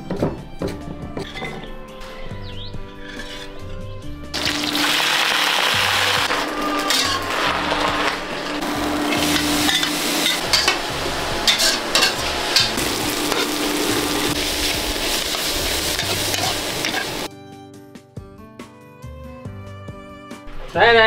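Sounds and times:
metal spatula scraping pan: 1.2s - 17.3s
food sizzling in pan: 4.4s - 17.3s.

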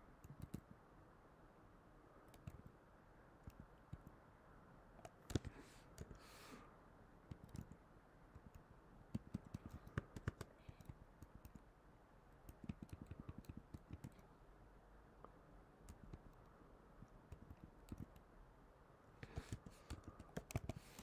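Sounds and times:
computer keyboard typing: 0.2s - 0.8s, 2.2s - 2.8s, 5.0s - 6.2s, 7.3s - 11.7s, 12.4s - 14.3s, 15.8s - 18.3s, 19.2s - 21.0s.

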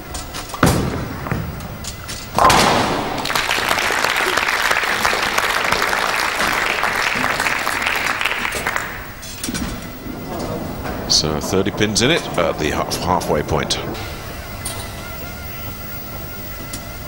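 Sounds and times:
bowling ball on wooden lane: 0.0s - 17.0s
bowling pins crashing: 0.0s - 17.0s
crowd applause: 2.4s - 9.2s.

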